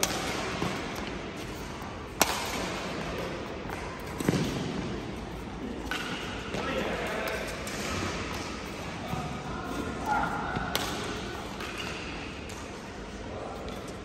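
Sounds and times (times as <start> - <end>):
racket striking shuttlecock: 0.0 - 4.9, 10.5 - 12.6
players' voices: 5.5 - 14.0.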